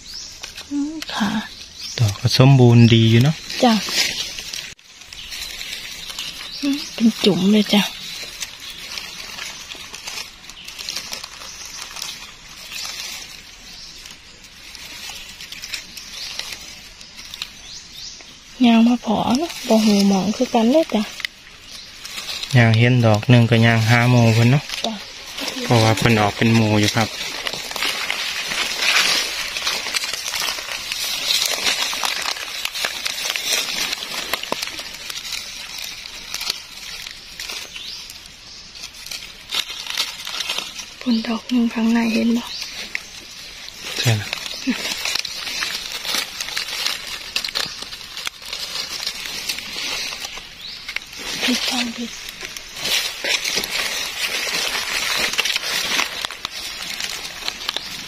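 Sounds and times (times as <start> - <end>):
dry leaves rustling and crackling: 0.0 - 58.0.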